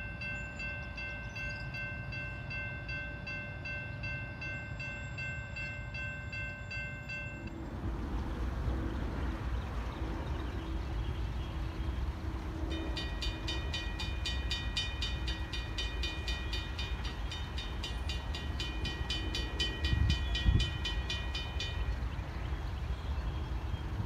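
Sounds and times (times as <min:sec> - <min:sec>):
railroad crossing bell ringing: 0:00.0 - 0:07.8, 0:12.6 - 0:22.3
wind rumbling on microphone: 0:07.3 - 0:15.5, 0:16.9 - 0:24.0.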